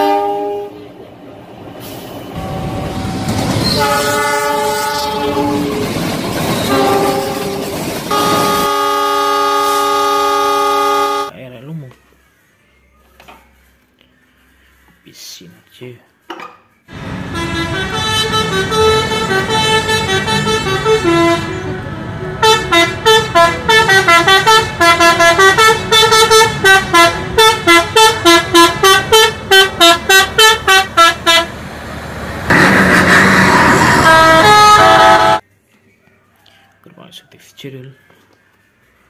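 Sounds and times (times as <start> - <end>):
musical air horns playing tune: 0.0 - 0.8, 3.8 - 5.8, 6.7 - 11.3, 17.2 - 31.5, 32.5 - 35.4.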